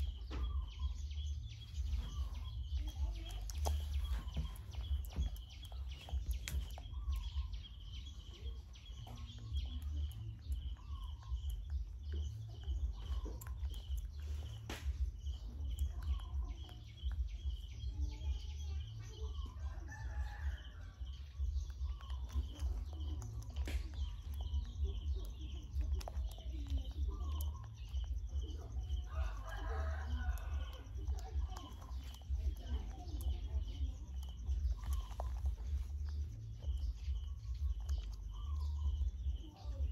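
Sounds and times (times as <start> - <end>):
low rumble: 0.0 - 39.9.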